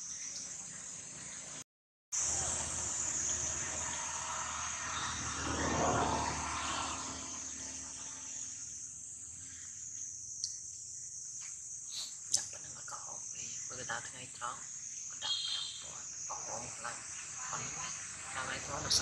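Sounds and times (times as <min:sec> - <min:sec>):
insects chorus: 0:00.0 - 0:01.6, 0:02.2 - 0:19.0
broad rushing noise: 0:02.2 - 0:08.4.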